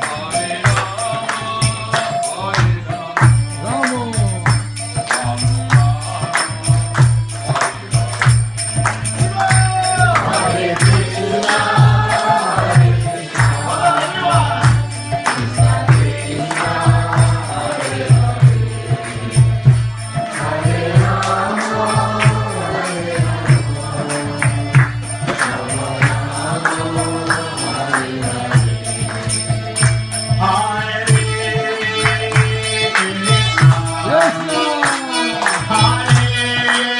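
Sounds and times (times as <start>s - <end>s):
ringing hand cymbals: 0.0s - 36.9s
steady drum beat: 0.0s - 36.9s.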